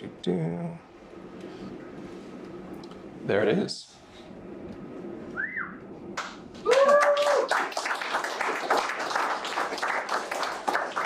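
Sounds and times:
short whistle: 5.3s - 5.8s
whooping cheer: 6.6s - 7.9s
audience applause: 6.6s - 11.0s.

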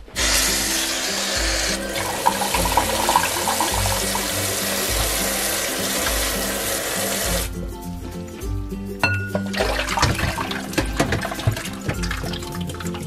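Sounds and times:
background music with bass line: 0.0s - 13.0s
tap water splashing into colander: 1.7s - 7.5s, 9.3s - 13.0s.

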